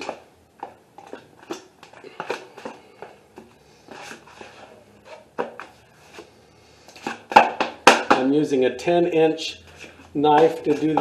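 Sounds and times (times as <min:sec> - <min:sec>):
knife scraping joint compound: 0:01.0 - 0:07.5, 0:09.6 - 0:11.0.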